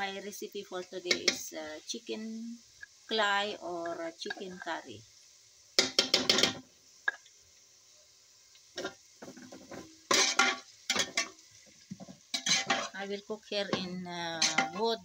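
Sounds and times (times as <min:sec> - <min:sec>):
spatula scraping metal pot: 0:08.8 - 0:11.3, 0:12.3 - 0:13.0, 0:13.7 - 0:14.9.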